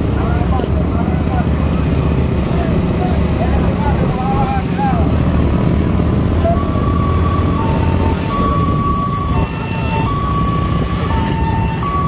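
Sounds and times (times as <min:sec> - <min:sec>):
vehicle motor rumble: 0:00.0 - 0:12.0
two-tone hi-lo siren: 0:06.4 - 0:12.0.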